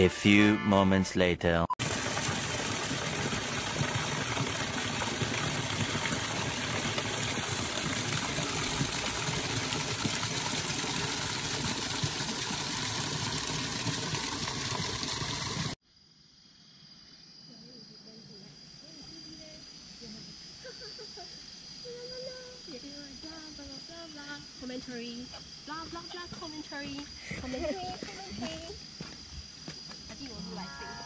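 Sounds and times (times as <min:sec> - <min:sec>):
stream rushing over rocks: 0:01.8 - 0:15.8.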